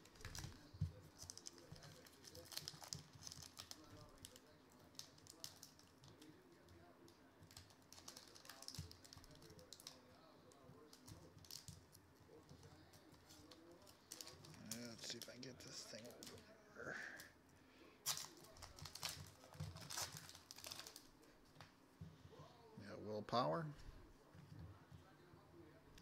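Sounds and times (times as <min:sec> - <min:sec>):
plastic wrapper crackling: 0:00.0 - 0:06.3, 0:07.5 - 0:11.9, 0:13.3 - 0:16.4, 0:18.0 - 0:21.2.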